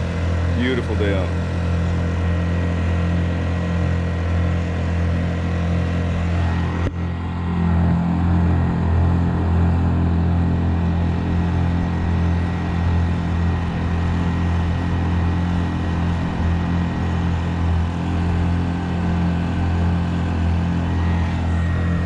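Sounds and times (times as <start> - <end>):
outboard engine running steadily: 0.0 - 22.0.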